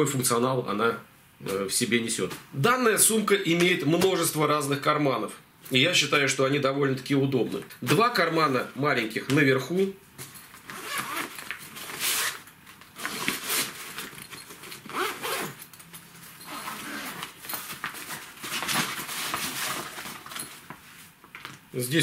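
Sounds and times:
bag zippers being pulled open: 10.7 - 12.4, 13.0 - 13.8, 14.8 - 15.6, 16.4 - 17.4.

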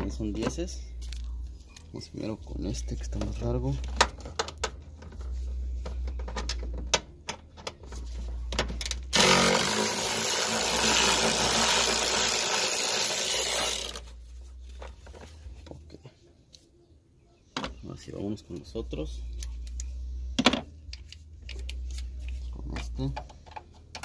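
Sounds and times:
power ratchet running: 9.1 - 14.0.

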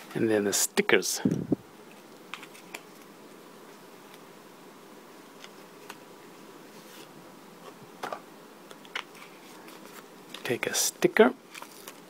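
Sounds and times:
plastic and paper rustling: 1.8 - 3.1, 8.9 - 10.6, 11.4 - 12.0.

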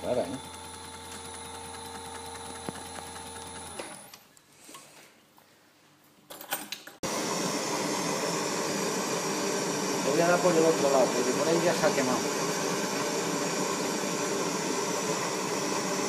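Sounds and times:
small motor humming: 0.0 - 4.1
torch flame hissing: 7.0 - 16.0.

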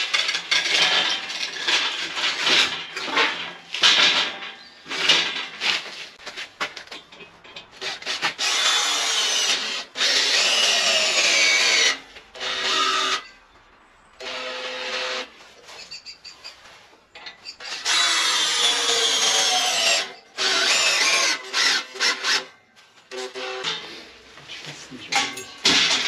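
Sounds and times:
scraping: 0.0 - 8.5, 15.2 - 17.9
cordless drill on steel: 8.4 - 13.2, 17.6 - 22.5.

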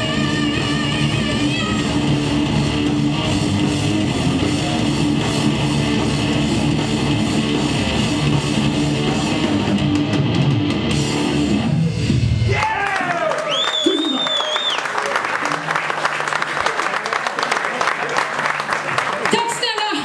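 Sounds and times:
heavy metal band playing live: 0.0 - 12.6.

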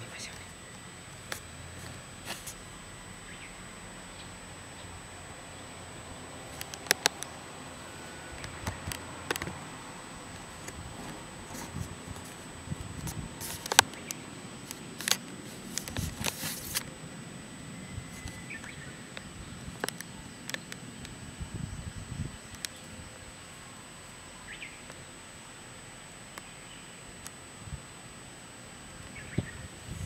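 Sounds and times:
sharp clicks: 6.5 - 7.4
faint high-pitched tone: 21.4 - 26.0.

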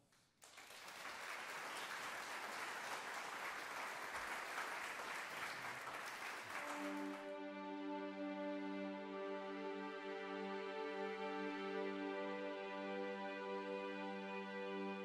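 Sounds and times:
crowd applauding: 0.0 - 7.3
soft music with held notes: 6.6 - 15.0.

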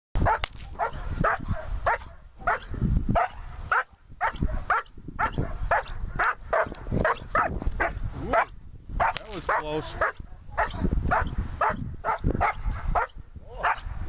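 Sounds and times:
dog barking: 0.2 - 13.9.

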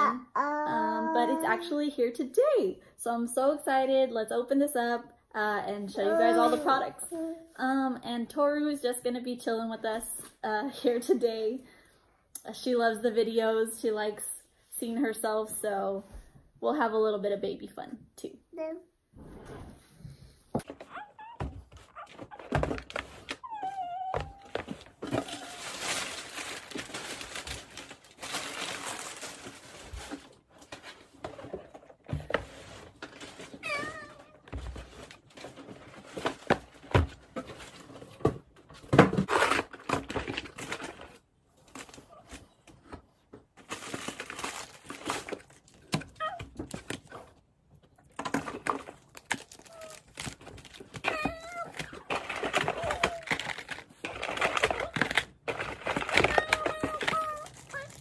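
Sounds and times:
toddler vocal sounds: 0.0 - 1.7, 6.0 - 7.6.

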